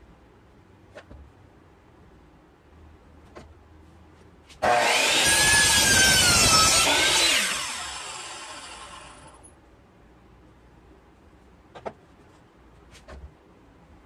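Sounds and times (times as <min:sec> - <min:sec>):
mitre saw cutting boards: 0:04.6 - 0:09.4.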